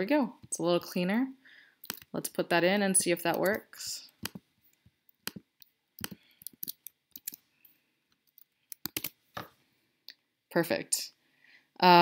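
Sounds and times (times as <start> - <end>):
computer mouse and keyboard clicks: 3.3 - 7.4, 8.1 - 9.2.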